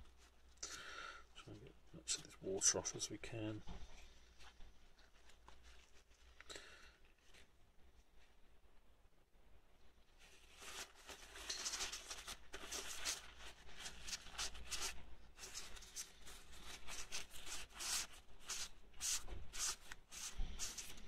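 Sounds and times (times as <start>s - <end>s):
paper tissue rubbing inside metal bore: 10.2s - 21.0s.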